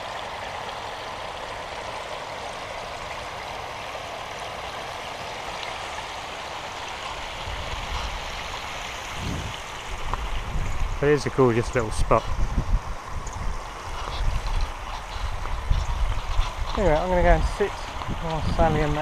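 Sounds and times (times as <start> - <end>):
water spilling into pool gutter: 0.0 - 19.0.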